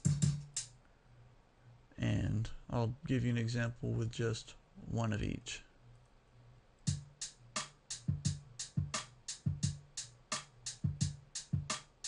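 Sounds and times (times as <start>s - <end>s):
kick drums: 0.0s - 0.5s, 8.0s - 9.9s, 10.8s - 11.8s
hi-hat: 0.0s - 0.8s, 6.9s - 12.0s.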